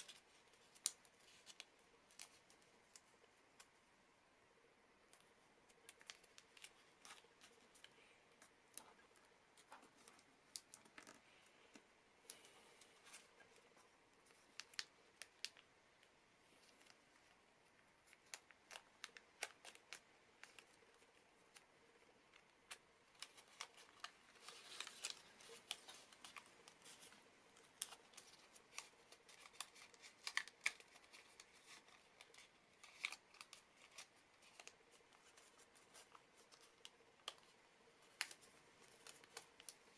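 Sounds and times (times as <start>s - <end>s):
paper folding and crackling: 0.0s - 3.9s, 5.0s - 39.9s.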